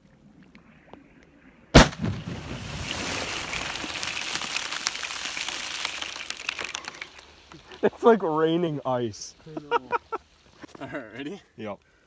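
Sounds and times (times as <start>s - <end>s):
firework bursting with sharp bang: 1.8s - 6.4s
ice shards and spray pattering: 2.4s - 10.6s.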